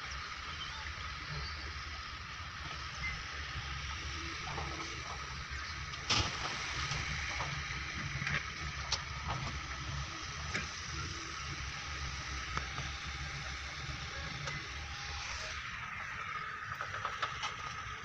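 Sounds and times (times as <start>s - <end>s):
diesel excavator engine running: 0.0s - 18.0s.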